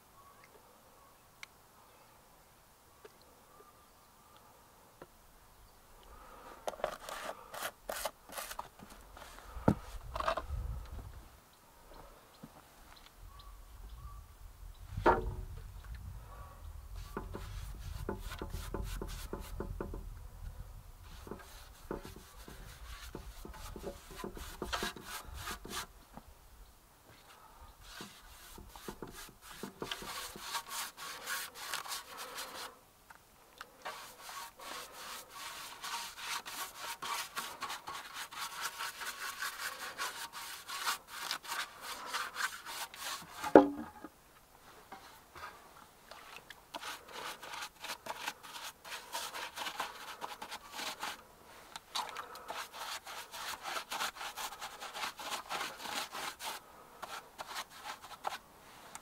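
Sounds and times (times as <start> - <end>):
paintbrush scrubbing wood: 6.8 - 10.3, 16.9 - 19.9, 21.0 - 25.9, 27.8 - 32.8, 33.8 - 43.9, 46.1 - 51.2, 52.0 - 58.8.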